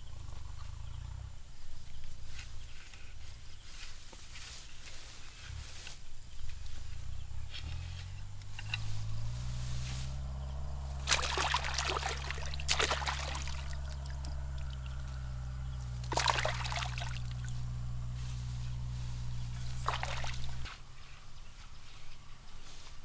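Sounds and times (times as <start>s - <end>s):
wet grass and mud squelching: 3.6s - 21.0s
steady low hum: 5.2s - 22.1s.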